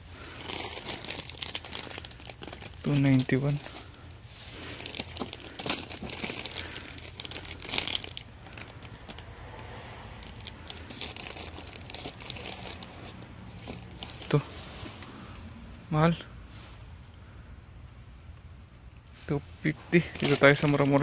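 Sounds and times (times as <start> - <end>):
plastic packets crinkling: 0.0 - 9.4, 10.2 - 15.2, 19.9 - 21.0.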